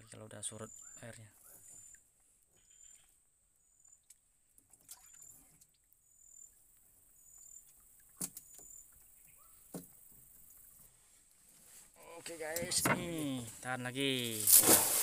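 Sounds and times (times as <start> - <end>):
faint insect chirps: 0.5 - 4.2, 5.0 - 11.0.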